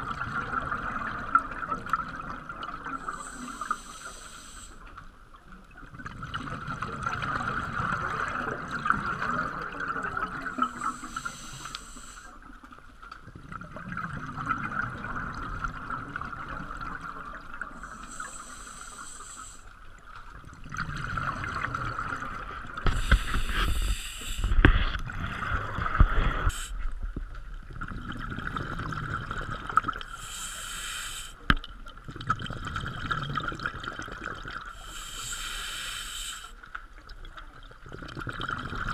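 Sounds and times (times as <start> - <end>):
gurgle of exhaled bubbles: 0.0 - 3.4, 5.8 - 11.6, 13.2 - 18.3, 20.3 - 30.6, 31.4 - 35.0, 37.0 - 38.9
regulator hiss on inhale: 2.9 - 4.9, 10.6 - 12.4, 17.7 - 19.8, 22.9 - 25.0, 26.2 - 26.9, 30.1 - 31.6, 34.8 - 36.6.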